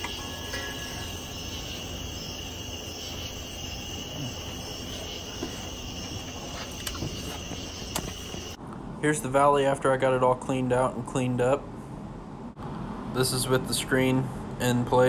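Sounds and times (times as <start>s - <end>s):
crickets chirping: 0.0s - 8.6s
low steady hum: 0.0s - 12.5s.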